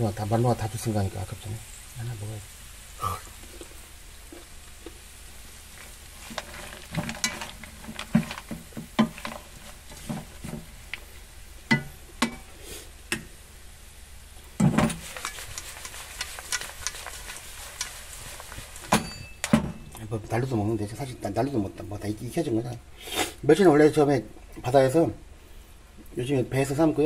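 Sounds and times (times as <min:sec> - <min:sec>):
oil sizzling: 0:00.0 - 0:24.9
wooden spatula scraping a pan: 0:05.7 - 0:11.2, 0:14.6 - 0:19.9.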